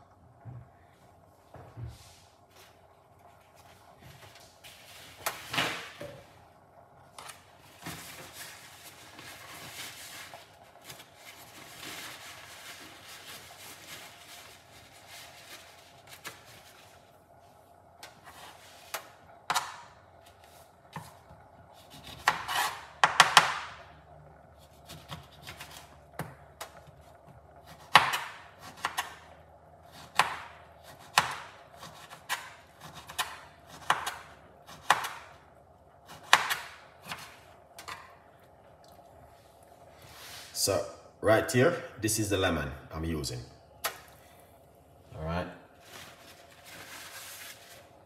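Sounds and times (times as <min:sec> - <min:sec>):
knife cutting on chopping board: 0:21.8 - 0:23.4.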